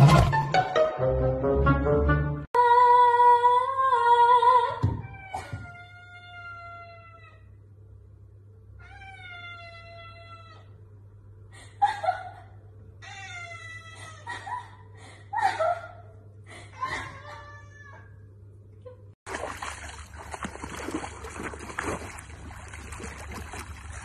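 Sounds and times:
cat meowing: 0:05.2 - 0:07.5, 0:08.8 - 0:10.7.

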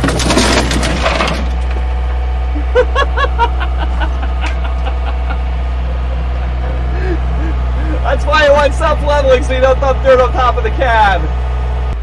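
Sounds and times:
machine engine running: 0:00.0 - 0:12.0
person laughing: 0:02.5 - 0:08.2.

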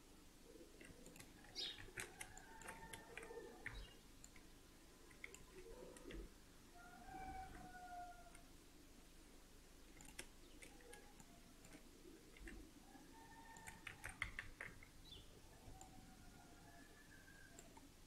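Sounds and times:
mouse and keyboard clicks: 0:00.8 - 0:04.5, 0:05.1 - 0:06.3, 0:09.9 - 0:12.6, 0:13.5 - 0:14.9.

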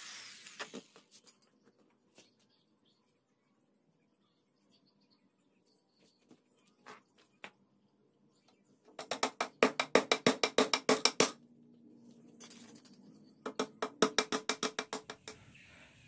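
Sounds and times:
hammer driving nails into wood: 0:09.0 - 0:11.4.

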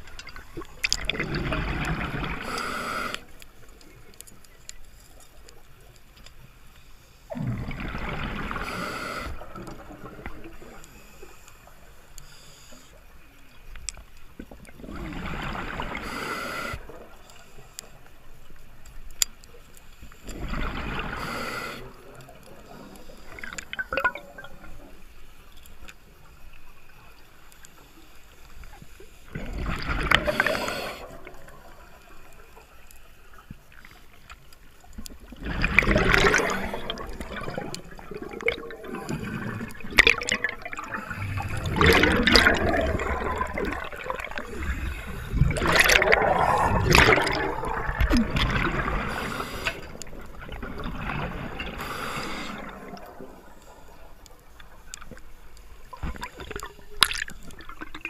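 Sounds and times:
regulator bubbles underwater: 0:00.0 - 0:04.1, 0:07.3 - 0:11.2, 0:14.3 - 0:17.3, 0:20.2 - 0:26.3, 0:28.6 - 0:58.0.

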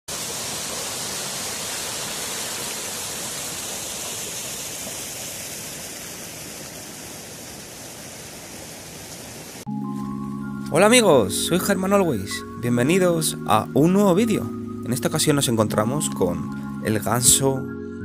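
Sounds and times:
stream rushing over stones: 0:00.1 - 0:09.7.

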